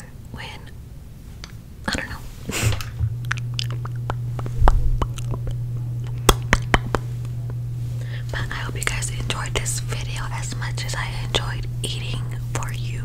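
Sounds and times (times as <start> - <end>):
steady low hum: 0.0 - 13.0
wet lip and tongue clicks: 3.2 - 5.6.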